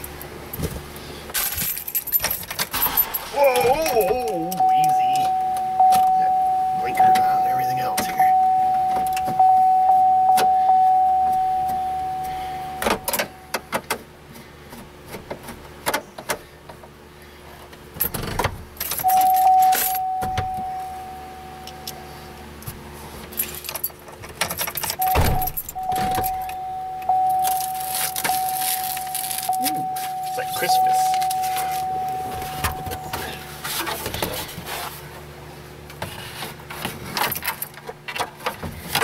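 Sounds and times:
steady high tone: 3.3 - 13.7, 19.0 - 22.5, 25.0 - 33.7
keys jangling: 23.3 - 30.4.

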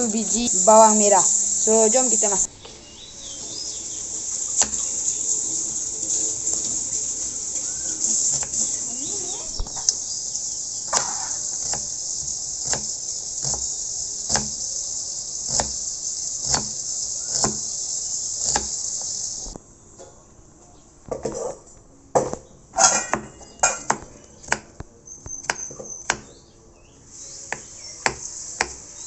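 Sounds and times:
insect chirring: 0.0 - 19.6, 27.1 - 29.0
knife chopping onion on board: 4.6 - 4.8, 8.3 - 8.6, 10.9 - 14.6, 15.5 - 17.7, 18.4 - 18.8, 23.0 - 26.4, 27.5 - 28.8.

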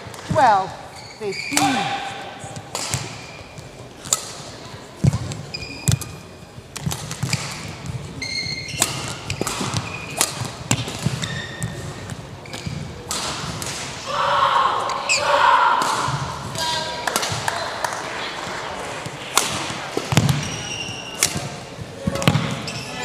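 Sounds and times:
shoes squeaking on court: 0.2 - 4.1, 5.0 - 13.0, 20.0 - 23.0
rackets hitting shuttlecocks: 1.5 - 14.0, 15.8 - 22.7.

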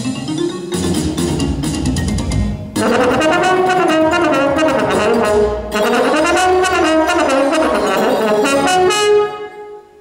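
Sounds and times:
french horn melody: 2.8 - 10.0.

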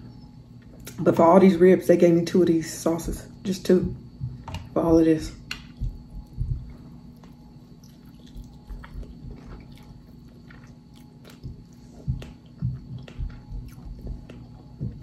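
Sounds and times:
person chewing ribs: 5.8 - 15.0.

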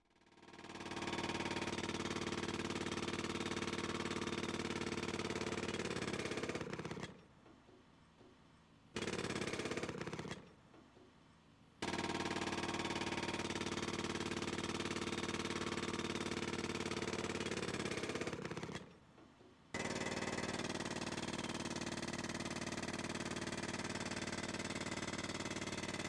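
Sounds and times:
demolition hammer chipping concrete: 19.8 - 26.0.

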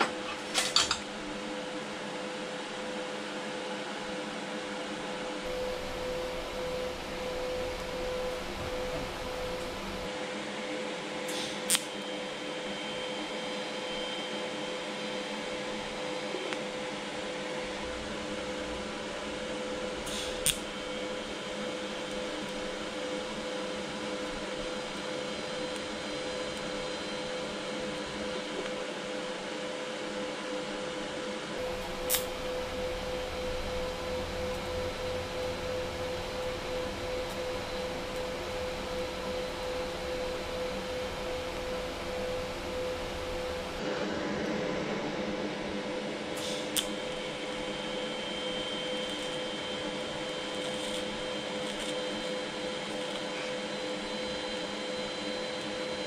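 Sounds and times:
welding arc buzzing hum: 5.4 - 10.1, 17.1 - 28.8, 31.6 - 43.8, 46.3 - 56.0.

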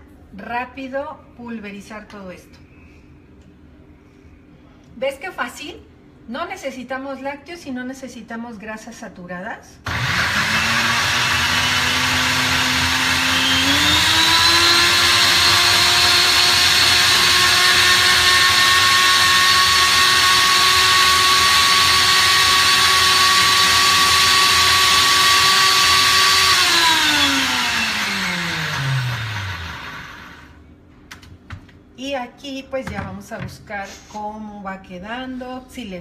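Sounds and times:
blender motor whining: 9.9 - 30.6.

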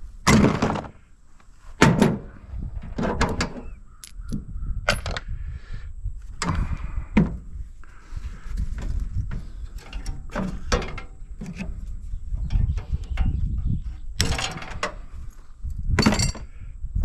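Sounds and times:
metal parts clanking and knocking: 1.8 - 4.2, 4.9 - 5.2, 9.3 - 11.8, 14.2 - 15.2, 16.0 - 16.5.

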